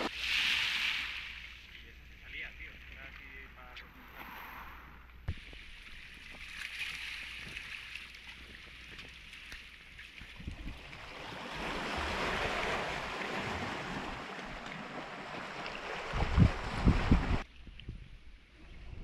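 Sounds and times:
waves washing over pebbles: 0:10.6 - 0:17.4.

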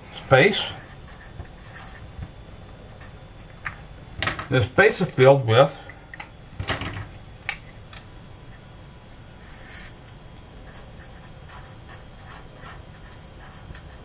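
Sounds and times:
marker scratching on paper: 0:00.6 - 0:02.1, 0:10.6 - 0:14.0.

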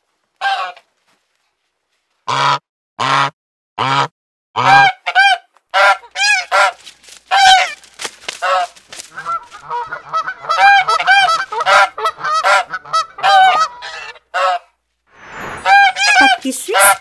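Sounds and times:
geese honking: 0:02.3 - 0:07.8, 0:08.4 - 0:14.7, 0:15.6 - 0:17.0.

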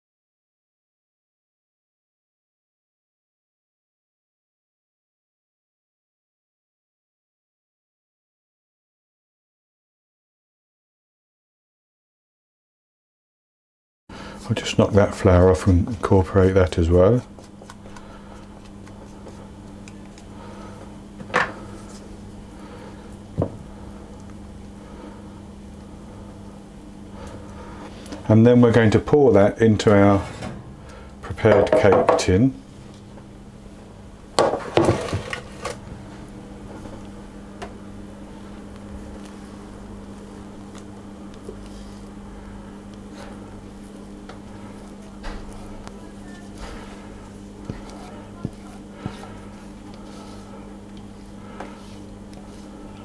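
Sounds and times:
spatula stirring batter in bowl: 0:14.4 - 0:21.0, 0:40.2 - 0:53.0
low hum: 0:17.3 - 0:53.0.

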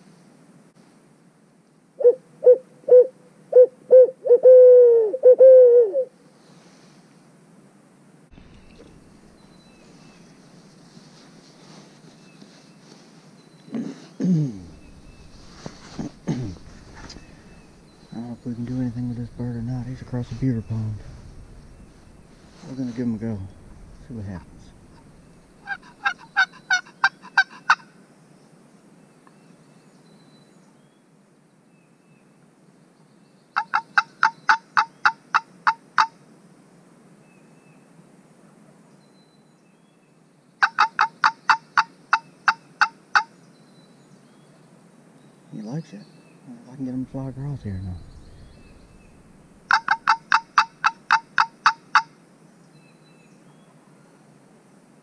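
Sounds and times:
turkey call yelps: 0:25.0 - 0:27.9, 0:33.6 - 0:36.1, 0:40.6 - 0:43.3, 0:49.7 - 0:52.1.

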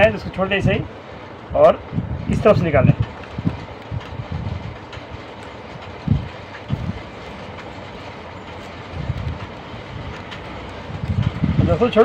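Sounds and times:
background rumble: 0:00.0 - 0:12.0
soft low knocks: 0:02.9 - 0:11.7.

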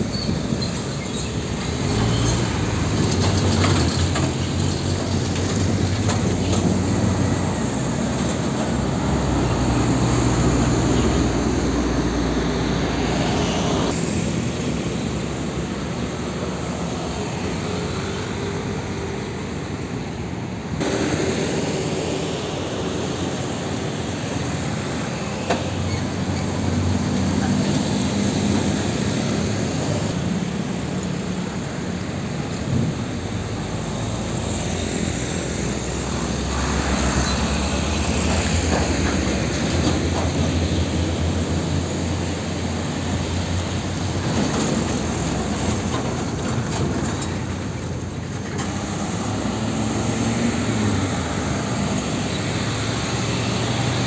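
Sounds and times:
car traffic: 0:00.0 - 0:54.0
diesel truck engine passing: 0:00.0 - 0:54.0.

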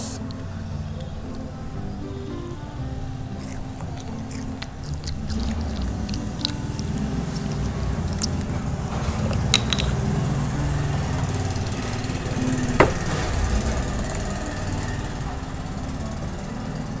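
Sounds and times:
low motor rumble: 0:00.0 - 0:17.0
sharp knock: 0:12.8 - 0:14.7.

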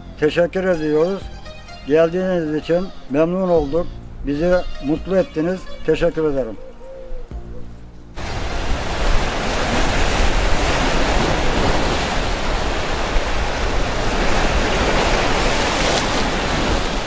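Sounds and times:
sea waves breaking on rocks: 0:08.2 - 0:17.0.

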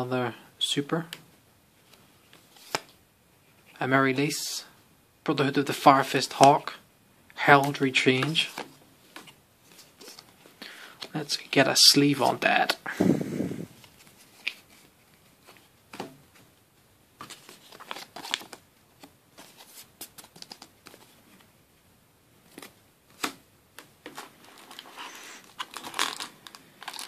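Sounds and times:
foil pack rustling: 0:24.1 - 0:27.0.

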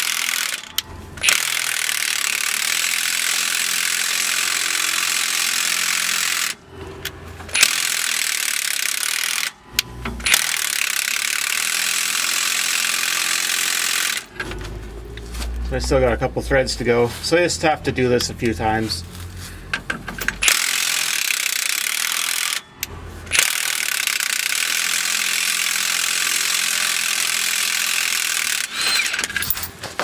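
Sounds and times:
impact wrench hammering: 0:00.0 - 0:06.6, 0:07.4 - 0:14.5, 0:19.8 - 0:30.0.

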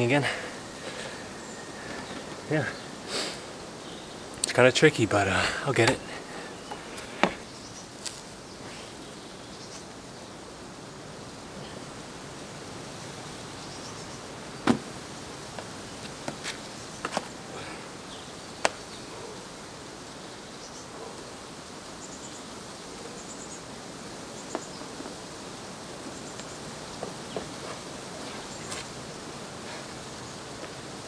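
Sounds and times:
faint high chirps: 0:00.0 - 0:04.4
steady background hiss: 0:00.0 - 0:31.0.

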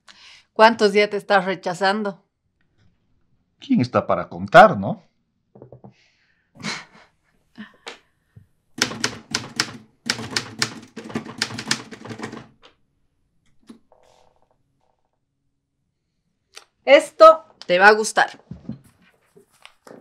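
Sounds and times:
typewriter typing: 0:08.8 - 0:12.6.

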